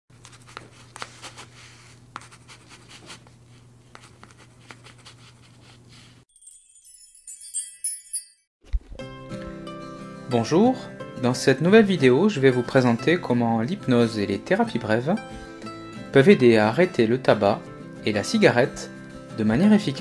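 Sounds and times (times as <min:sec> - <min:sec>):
bright tinkling chime: 0:06.3 - 0:08.6.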